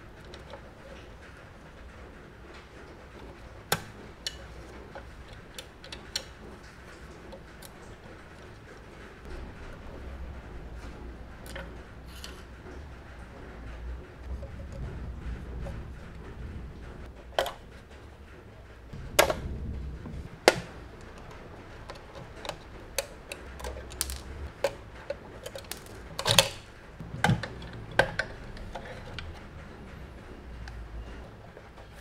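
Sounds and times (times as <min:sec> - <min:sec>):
handling metal model: 0:20.4 - 0:29.5
screwdriver clicking on metal: 0:21.9 - 0:24.8.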